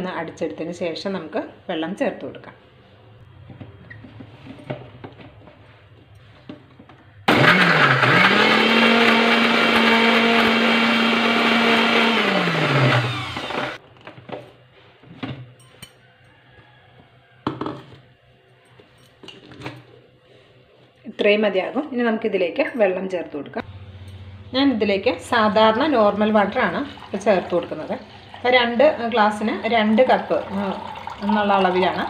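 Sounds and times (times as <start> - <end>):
mixer grinder whining: 7.2 - 13.8, 23.6 - 32.0.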